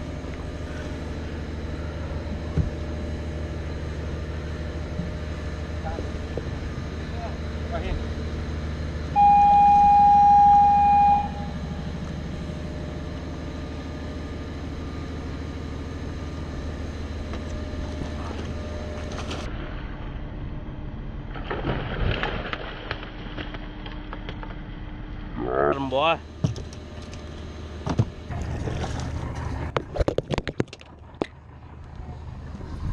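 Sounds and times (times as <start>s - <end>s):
low steady rumble: 0.0s - 32.9s
loud steady beep: 9.1s - 11.8s
fish thrashing in water: 21.3s - 24.0s, 28.3s - 31.6s.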